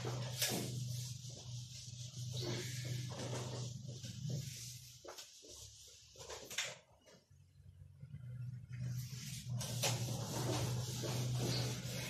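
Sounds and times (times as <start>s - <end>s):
eraser rubbing on whiteboard: 0.0s - 6.2s, 9.0s - 12.0s
low steady hum: 7.0s - 12.0s.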